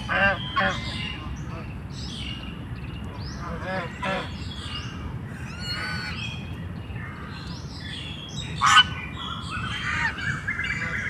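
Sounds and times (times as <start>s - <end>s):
geese honking: 0.0s - 1.7s, 3.4s - 4.4s, 5.3s - 6.4s, 8.6s - 11.0s.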